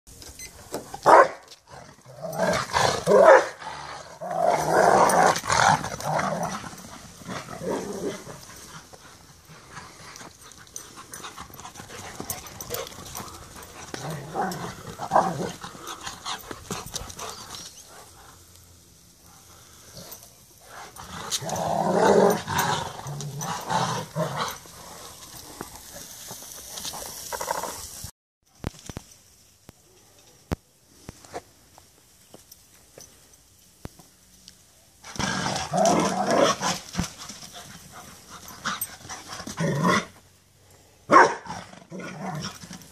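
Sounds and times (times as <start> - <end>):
dogs growling and barking in play: 1.0 - 18.3, 19.4 - 25.2, 35.0 - 40.2, 41.1 - 42.9.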